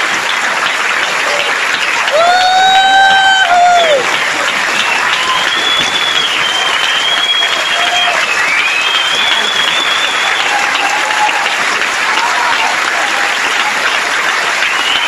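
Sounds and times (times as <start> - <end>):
audience applauding: 0.0 - 15.0
high held whistles: 4.8 - 10.7, 14.7 - 15.0.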